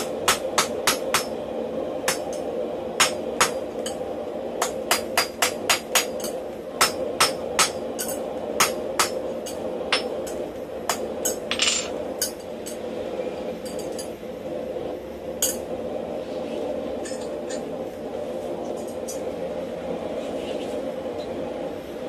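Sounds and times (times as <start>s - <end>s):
hammer striking hot steel: 0.0s - 1.4s, 2.0s - 12.8s, 15.4s - 15.7s
steady hum: 0.0s - 22.0s.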